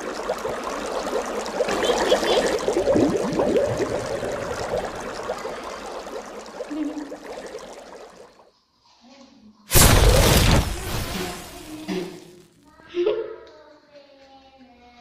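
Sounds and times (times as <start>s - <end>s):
water gurgling and bubbling: 0.0s - 8.4s.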